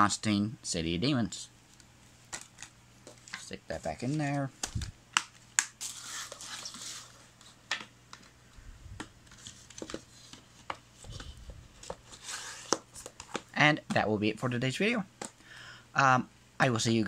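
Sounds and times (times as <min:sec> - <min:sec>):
cardboard slipcover sliding rustle: 0:05.8 - 0:07.5, 0:09.3 - 0:13.3.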